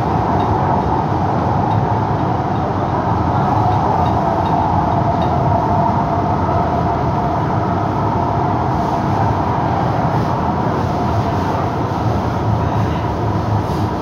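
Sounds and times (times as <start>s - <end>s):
constant hum: 0.0s - 14.0s
train rolling rumble: 0.0s - 14.0s.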